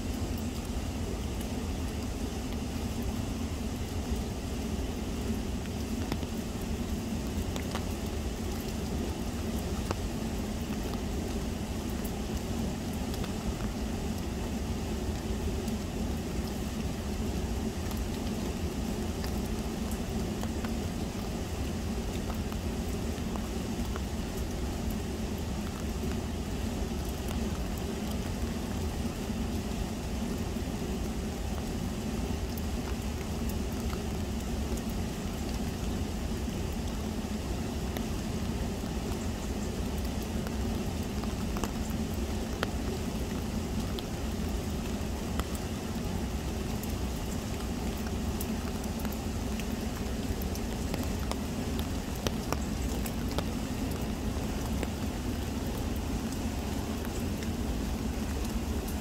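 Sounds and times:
raindrops ticking: 0:00.1 - 0:59.0.

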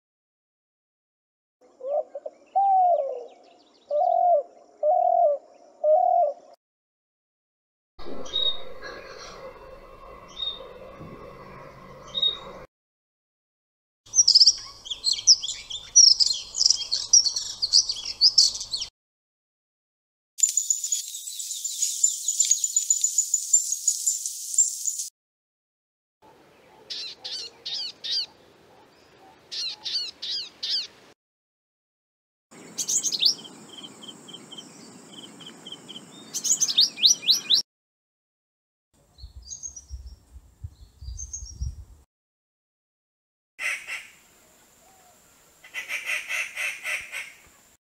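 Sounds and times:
bird calls: 0:01.6 - 0:06.5, 0:26.4 - 0:31.0, 0:32.6 - 0:37.6
birds chirping and whistling: 0:08.2 - 0:09.5, 0:10.2 - 0:12.5, 0:14.1 - 0:18.9, 0:20.4 - 0:25.1, 0:26.9 - 0:28.3, 0:29.5 - 0:30.9, 0:32.6 - 0:37.6, 0:39.2 - 0:41.8.

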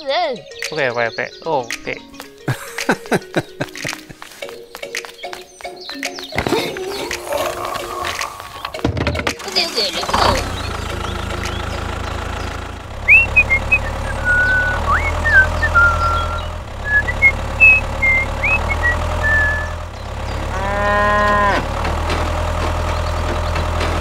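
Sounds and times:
cow mooing: 0:06.4 - 0:08.8, 0:20.4 - 0:21.8
low motor hum: 0:09.5 - 0:24.0
high bird-like chirps: 0:13.1 - 0:20.1.

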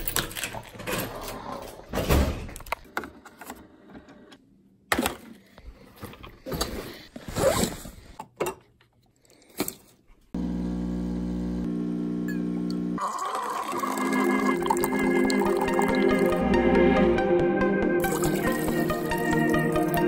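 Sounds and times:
rummaging through a backpack: 0:05.3 - 0:08.2.

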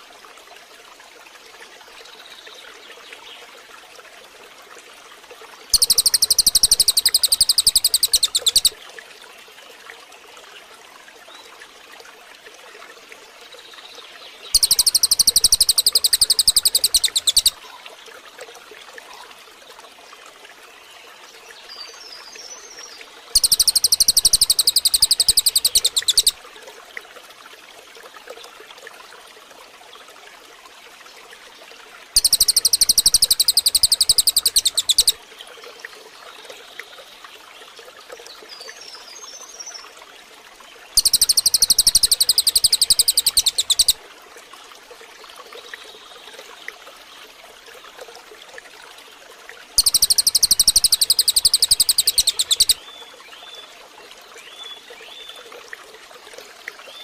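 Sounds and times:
trickling water: 0:00.0 - 0:57.0
faint bird chirps: 0:05.7 - 0:08.8, 0:14.5 - 0:17.8, 0:21.7 - 0:26.4, 0:32.2 - 0:35.2, 0:41.0 - 0:44.0, 0:49.8 - 0:53.7
high-pitched rapid birdsong: 0:05.8 - 0:08.8, 0:14.6 - 0:17.6, 0:23.4 - 0:26.4, 0:32.2 - 0:35.2, 0:41.0 - 0:44.0, 0:49.8 - 0:52.8.

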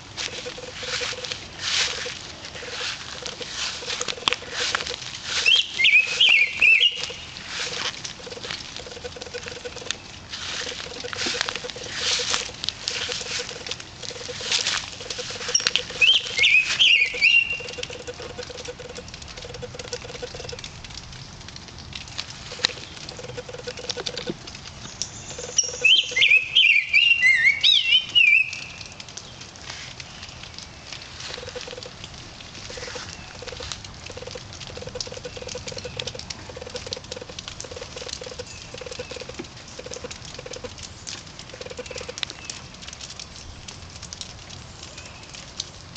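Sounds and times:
water dripping: 0:00.0 - 0:45.9
songbird singing: 0:00.2 - 0:20.6, 0:22.4 - 0:29.4, 0:32.6 - 0:40.6.

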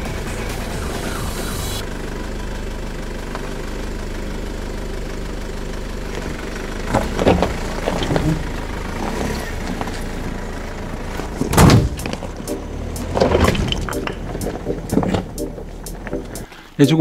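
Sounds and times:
diesel engine at low revs: 0:00.0 - 0:17.0
knocks and clunks: 0:06.9 - 0:08.6, 0:11.2 - 0:16.5
tyres on crushed stone: 0:13.0 - 0:14.4.

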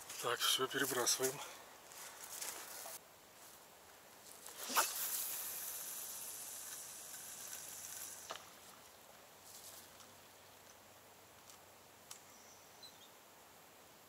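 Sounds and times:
fishing rod swishing: 0:04.5 - 0:06.3
fishing line running off reel: 0:04.6 - 0:08.6.

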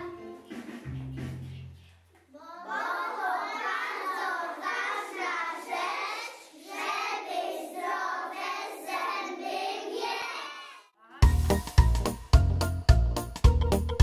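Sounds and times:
children singing: 0:02.4 - 0:11.2.

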